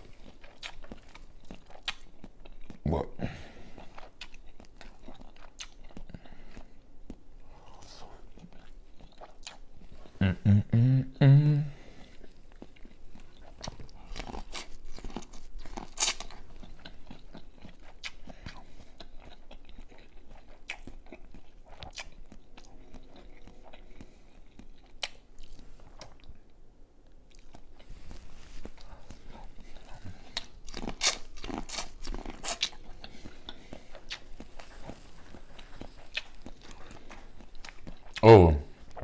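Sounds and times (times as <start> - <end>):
wet chewing: 0.0 - 2.8, 3.6 - 10.2, 11.9 - 26.4, 27.3 - 38.2
crisp corn crunching bites: 13.5 - 18.2, 30.4 - 33.0.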